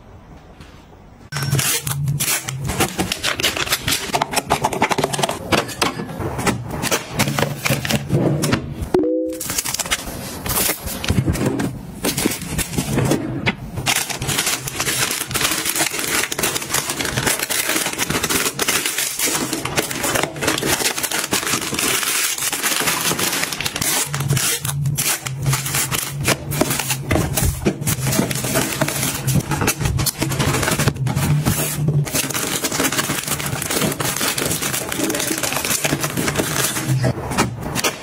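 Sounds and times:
plastic wrapping crinkling: 13.8 - 37.1.

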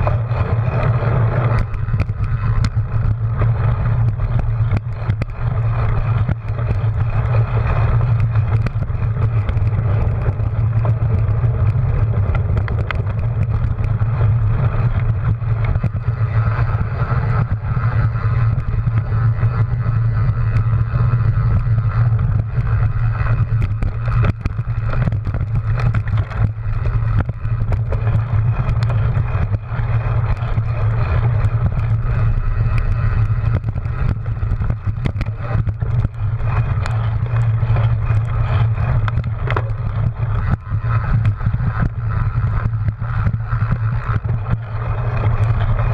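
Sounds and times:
bike rattling clicks and knocks: 0.0 - 45.9
bike tyres rolling on dirt: 0.0 - 45.9
wind rushing over camera: 0.0 - 45.9.

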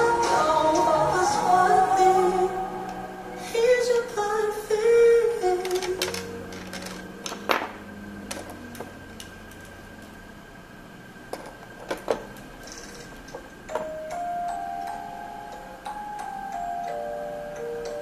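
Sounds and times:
background music note: 0.0 - 6.6
faint steady high tone: 0.0 - 6.6, 13.6 - 18.0.

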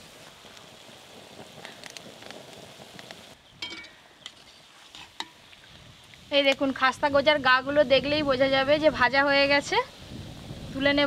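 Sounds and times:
pastries sizzling in oil: 0.0 - 11.0
spoon clinking against wok: 3.6 - 4.0.

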